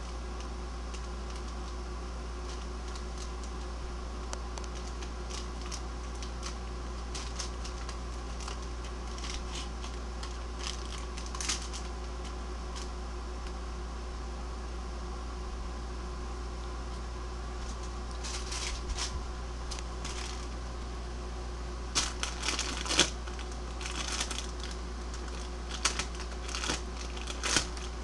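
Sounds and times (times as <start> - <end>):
crinkly bag crackling: 0.0 - 1.8, 2.4 - 3.8, 4.4 - 13.0, 17.6 - 20.7, 21.9 - 28.0
steady low hum: 0.0 - 28.0.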